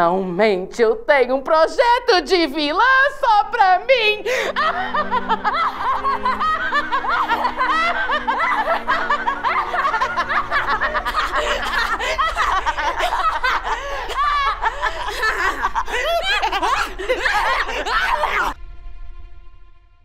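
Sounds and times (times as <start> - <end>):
women cackling with laughter: 4.3 - 18.6.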